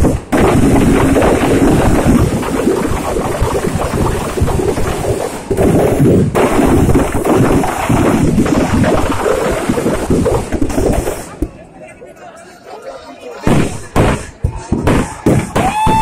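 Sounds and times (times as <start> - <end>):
firecrackers crackling: 0.0 - 12.0, 13.4 - 16.0.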